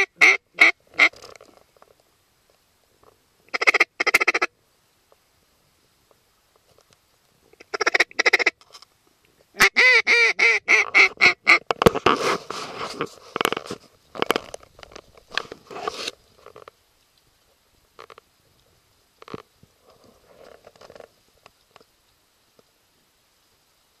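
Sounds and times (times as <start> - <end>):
duck quacking: 0.0 - 1.2, 3.5 - 4.5, 7.6 - 8.6, 9.6 - 11.7.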